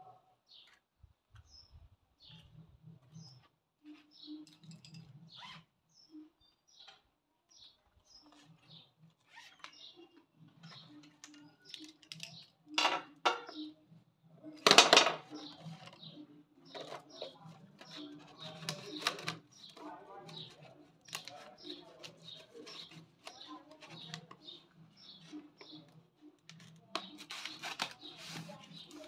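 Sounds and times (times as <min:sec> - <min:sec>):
birds calling: 0:01.4 - 0:29.0
pens clattering into tube: 0:14.6 - 0:16.0.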